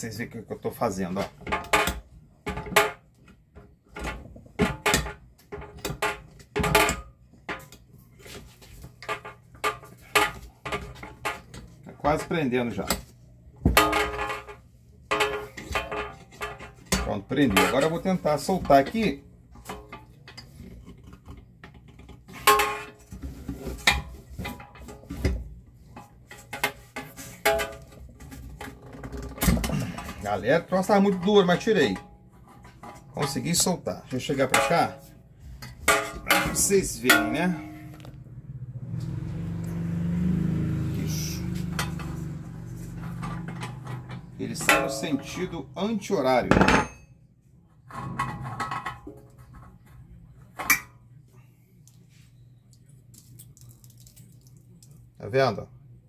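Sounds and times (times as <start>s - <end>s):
metallic knocks and clanks: 1.2s - 7.9s, 13.6s - 38.2s, 41.5s - 45.8s, 46.4s - 47.1s.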